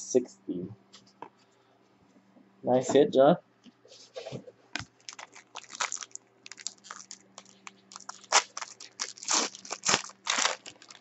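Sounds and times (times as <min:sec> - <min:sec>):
faint electrical hum: 0:00.0 - 0:11.0
foil wrapper crinkling: 0:04.8 - 0:11.0.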